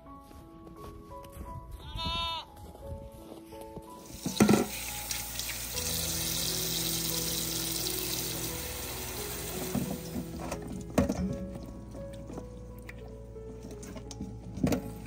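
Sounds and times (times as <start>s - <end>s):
faucet running into metal bowl: 4.1s - 10.6s.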